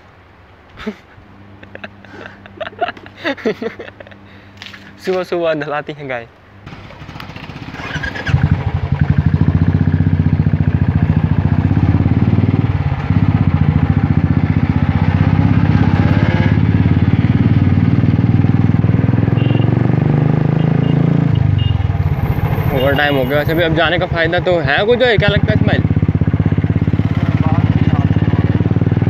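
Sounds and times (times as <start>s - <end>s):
motorcycle engine running: 6.6s - 29.0s.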